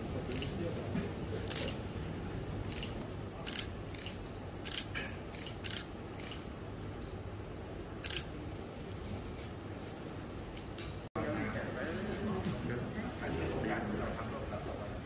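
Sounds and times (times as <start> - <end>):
low background hum: 0.0 - 15.0
camera shutters clicking: 2.7 - 6.4, 8.0 - 8.3.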